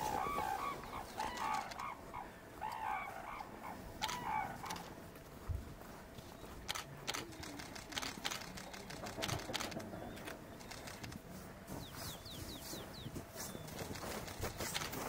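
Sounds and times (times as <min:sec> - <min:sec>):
sharp clicks: 0:01.1 - 0:02.0, 0:04.0 - 0:04.9, 0:06.6 - 0:11.2.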